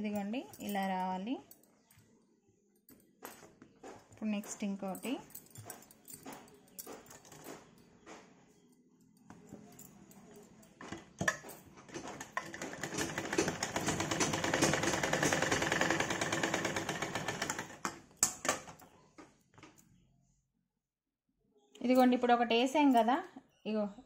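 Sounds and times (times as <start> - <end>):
sewing machine stitching: 11.9 - 18.0.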